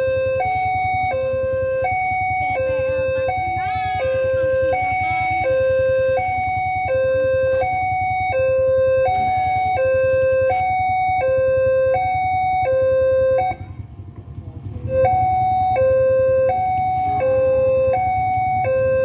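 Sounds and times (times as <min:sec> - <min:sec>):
level-crossing two-tone alarm: 0:00.0 - 0:13.8, 0:14.8 - 0:19.0.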